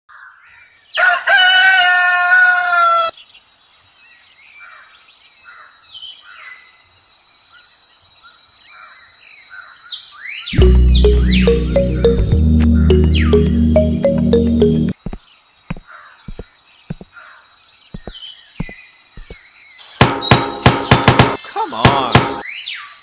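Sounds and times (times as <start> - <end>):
rooster crowing: 1.0 - 3.1.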